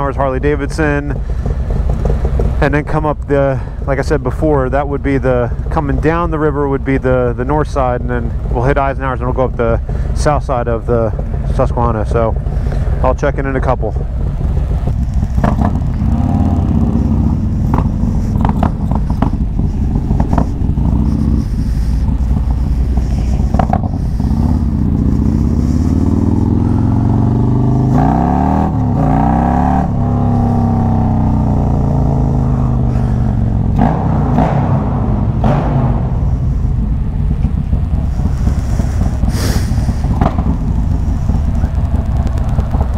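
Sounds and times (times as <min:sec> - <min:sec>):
motorcycle engine revving: 0:00.0 - 0:42.9.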